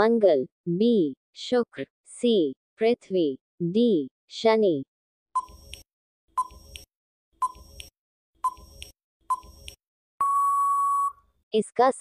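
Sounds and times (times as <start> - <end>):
short timer beeps: 5.4 - 5.8, 6.4 - 11.2
long steady beep: 10.2 - 11.2.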